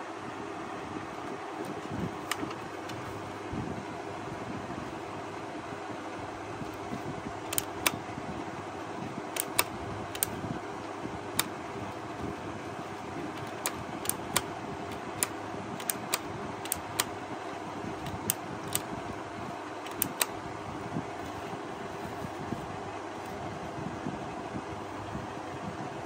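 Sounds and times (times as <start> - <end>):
steady background noise: 0.0 - 26.0
plastic clicks and taps: 19.9 - 20.3.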